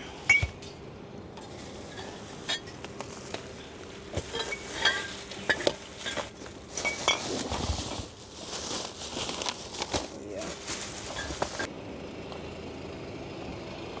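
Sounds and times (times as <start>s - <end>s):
groceries knocking and clinking: 1.4s - 11.7s
paper bags rustling: 1.4s - 11.7s.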